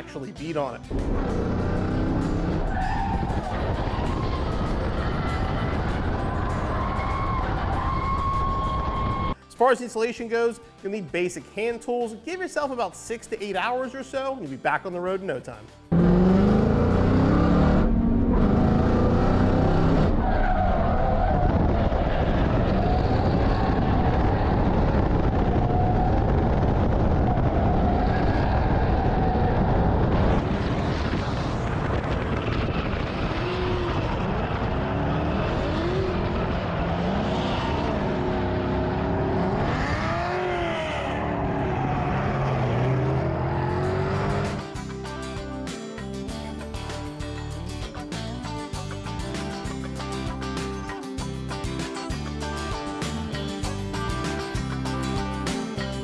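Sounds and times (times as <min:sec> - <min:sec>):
car engine revving: 0:00.9 - 0:07.4, 0:15.9 - 0:30.8, 0:33.0 - 0:44.8.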